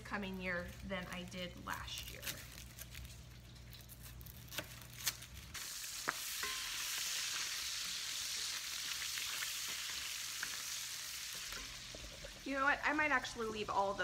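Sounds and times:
bacon sizzling in skillet: 3.0s - 14.0s.

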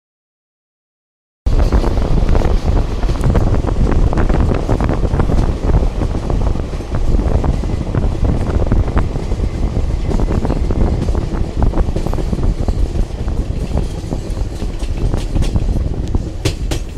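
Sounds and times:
train wheels rumbling on track: 1.5s - 16.9s
wheels clicking and clattering: 1.5s - 16.9s
wind buffeting microphone: 1.5s - 16.9s.

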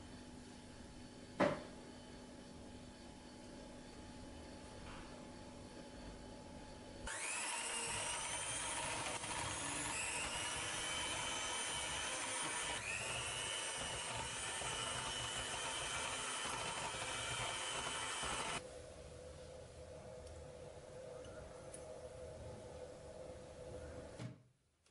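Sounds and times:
electric hand mixer whine: 7.1s - 18.6s.

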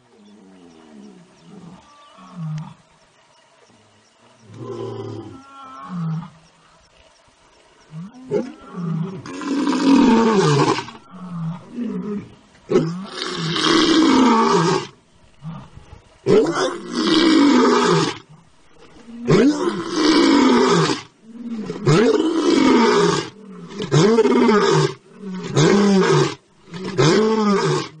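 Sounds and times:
tiger roaring: 8.0s - 28.0s.

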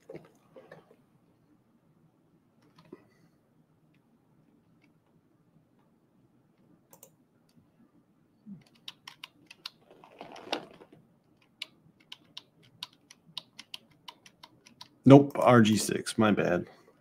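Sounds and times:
keyboard and mouse clicking: 6.9s - 7.2s, 8.6s - 9.8s, 11.4s - 15.0s.

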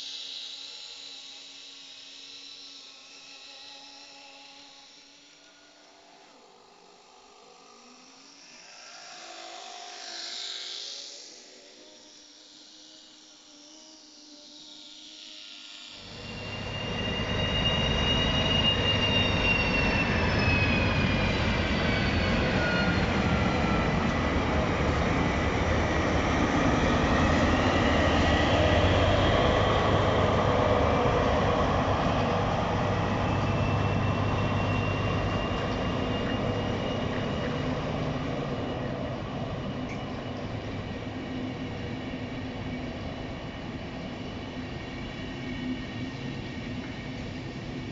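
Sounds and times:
high wheel squeal: 16.0s - 47.5s
diesel locomotive running: 16.0s - 47.9s.

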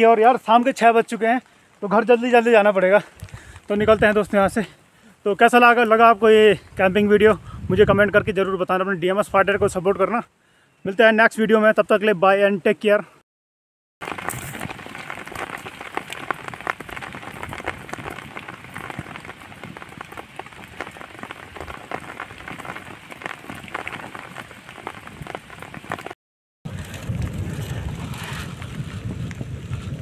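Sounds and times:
rain drops ticking on a surface: 0.0s - 5.1s, 14.0s - 26.2s, 26.8s - 30.0s.

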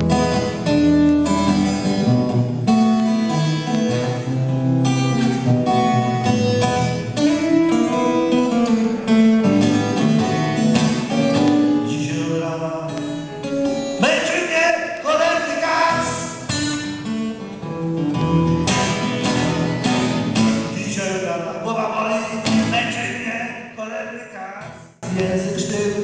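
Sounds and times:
acoustic guitar playing: 0.0s - 24.0s, 24.6s - 26.0s.

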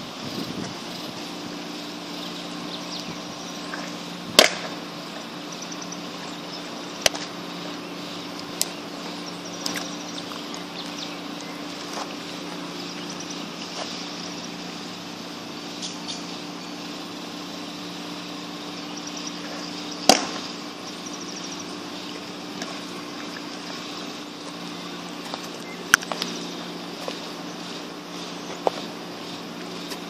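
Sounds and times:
steady low hum: 0.0s - 30.0s
baseball smacking into mitt: 4.3s - 4.7s, 20.0s - 20.4s.

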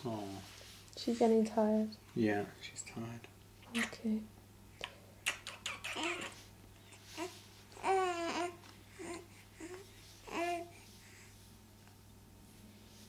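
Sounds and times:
baby cooing: 5.2s - 6.4s, 7.2s - 10.7s.

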